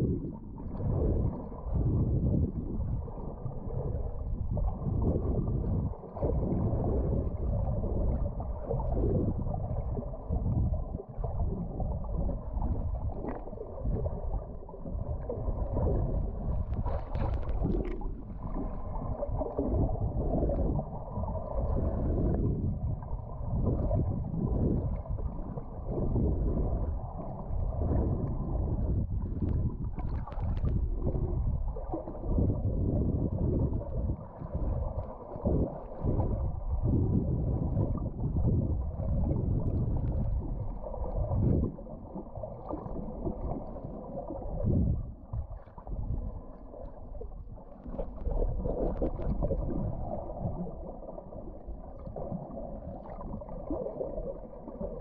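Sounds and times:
muffled underwater water noise: 0:00.0 - 0:55.0
faint clicks: 0:16.6 - 0:18.1.

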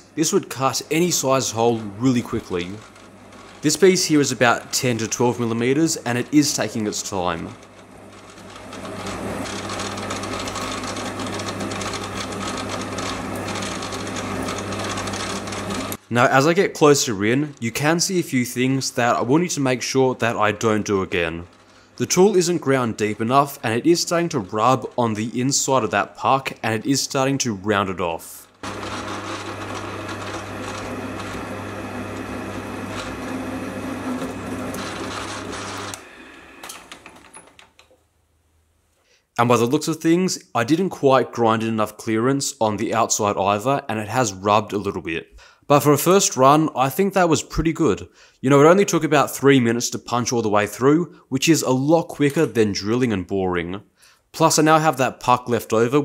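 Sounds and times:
lathe drive humming: 0:00.2 - 0:16.0, 0:28.6 - 0:37.6.

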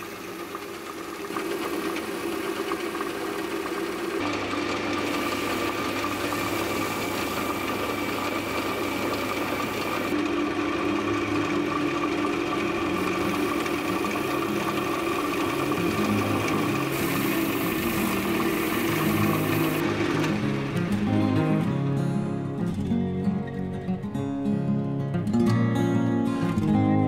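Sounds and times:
wood lathe motor running: 0:00.0 - 0:21.8
cloth pad sanding wood: 0:13.0 - 0:19.8.

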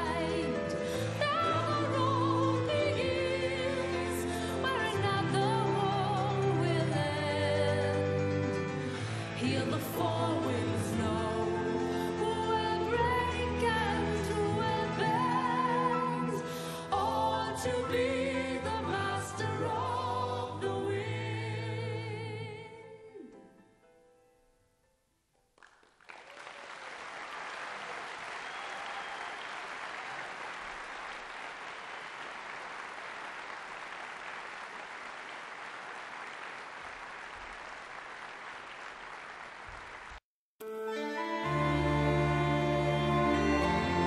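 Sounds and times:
a cappella voices singing chord: 0:00.0 - 0:23.3, 0:41.0 - 0:44.0
audience applauding: 0:25.6 - 0:40.2.

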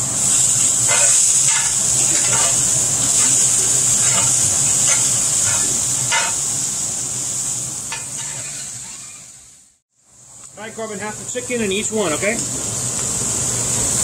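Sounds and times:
rice sizzling in a hot pan: 0:00.0 - 0:14.0
spatula scraping a pan: 0:00.8 - 0:06.5, 0:07.9 - 0:09.4.

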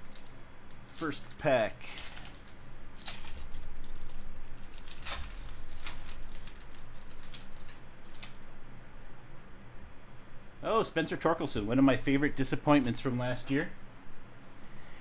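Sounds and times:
foil wrapper crinkling: 0:00.0 - 0:08.4.

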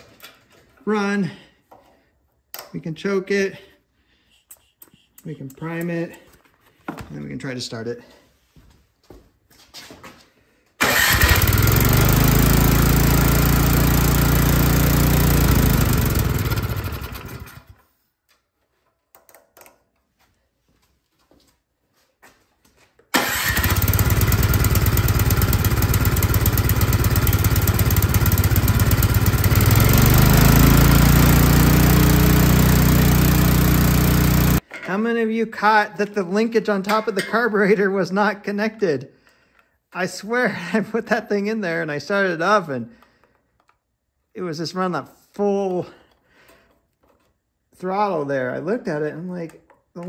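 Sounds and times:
snowblower engine running: 0:10.8 - 0:17.8, 0:23.2 - 0:34.6.

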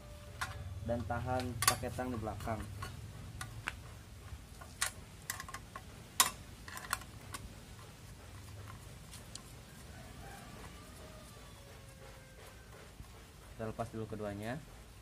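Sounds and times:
bolt clicking and clinking: 0:01.4 - 0:03.8, 0:04.5 - 0:07.5.

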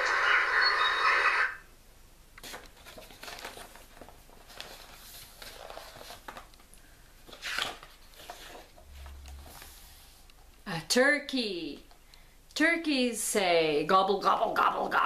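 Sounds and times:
paper book rustling: 0:02.4 - 0:10.2.

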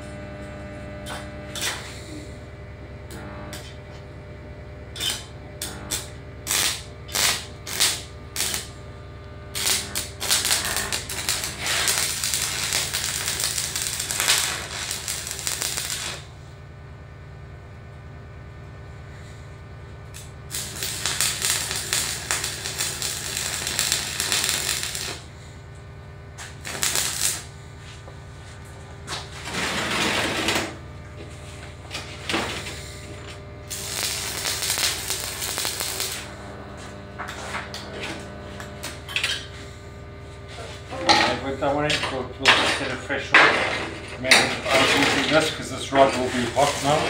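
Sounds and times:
steady low hum: 0:00.0 - 0:47.0
welding arc crackling: 0:01.0 - 0:02.3, 0:03.1 - 0:03.8, 0:04.8 - 0:16.3, 0:20.0 - 0:25.3, 0:26.2 - 0:39.5, 0:42.8 - 0:47.0.

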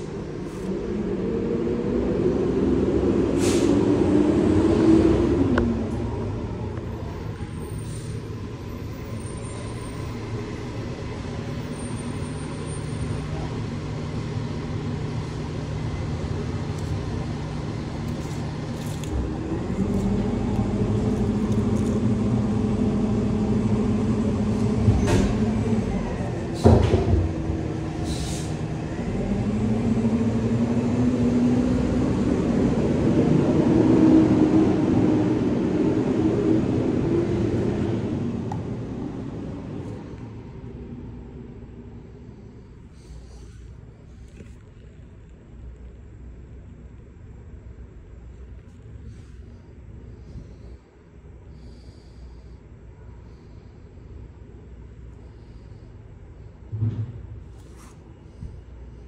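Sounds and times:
vehicle engine running: 0:13.2 - 0:33.6.

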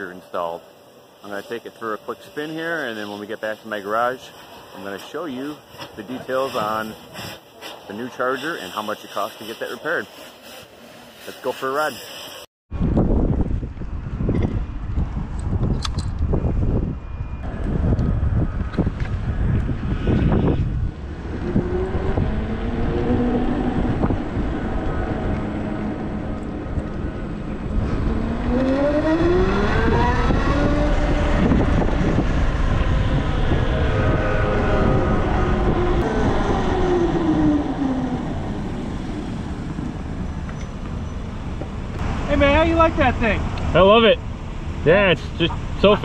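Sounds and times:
wind on microphone: 0:12.7 - 0:40.6
electric motorcycle whining: 0:16.4 - 0:41.2.

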